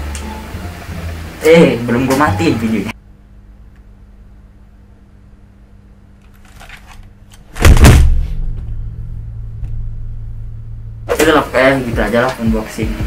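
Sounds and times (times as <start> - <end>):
faint steady hum: 0.0 - 13.0
deep boom settling into rumbling drone: 7.7 - 11.1.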